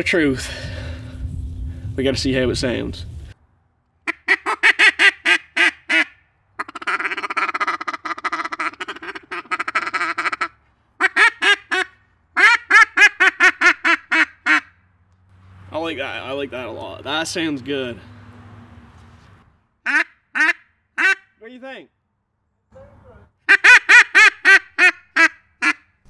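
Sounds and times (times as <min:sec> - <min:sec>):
duck call quacks: 0:04.0 - 0:14.8, 0:19.8 - 0:21.4, 0:23.4 - 0:26.0.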